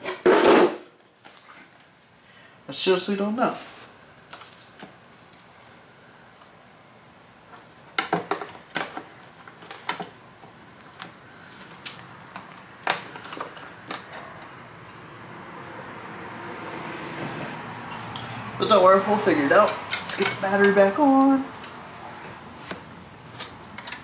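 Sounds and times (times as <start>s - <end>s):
clicks and knocks of parts handled: 19.6s - 20.8s, 22.7s - 24.0s.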